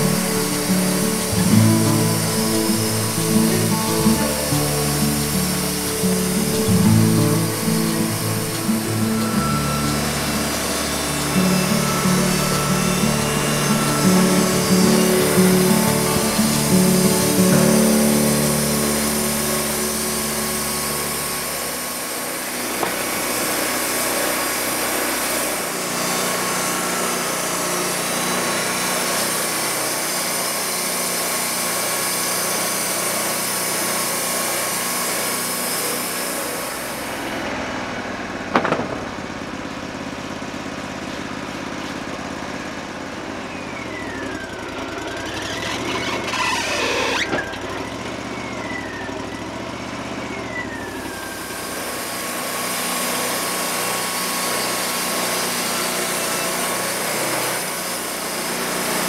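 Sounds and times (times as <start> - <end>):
band saw blade hissing through log: 0.0 - 37.3
wavering squeal: 0.0 - 37.4, 43.4 - 58.1
sawmill engine running: 0.0 - 59.0
sharp knock: 38.6 - 39.4.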